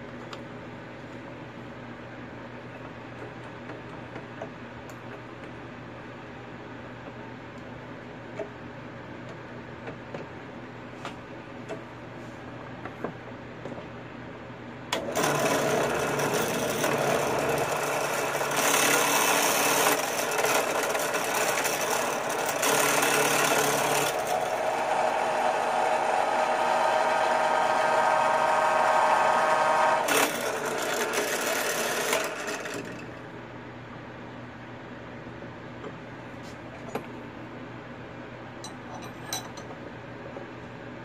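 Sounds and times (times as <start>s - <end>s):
motor hum: 14.9s - 33.2s
drill bit cutting metal: 15.0s - 32.8s.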